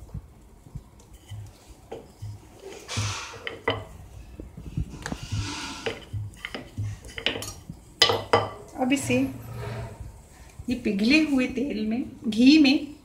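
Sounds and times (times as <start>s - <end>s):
rolling pin thudding on dough: 1.3s - 8.6s.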